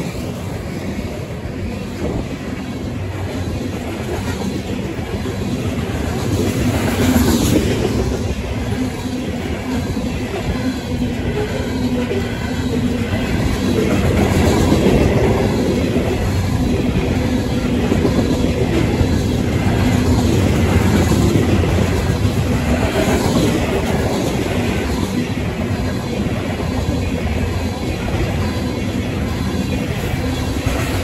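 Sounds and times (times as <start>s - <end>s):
freight train wheels rumbling: 0.0s - 31.0s.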